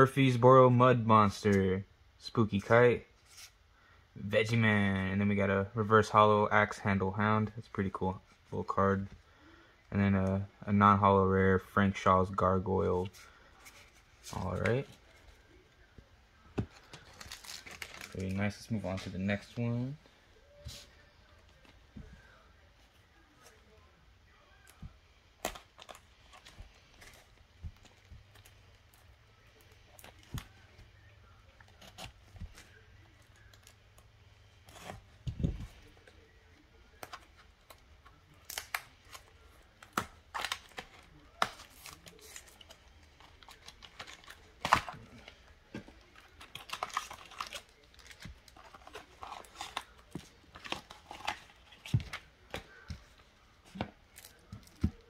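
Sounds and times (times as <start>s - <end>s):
plastic wrap tearing and crinkling: 16.8s - 18.7s, 38.2s - 53.0s.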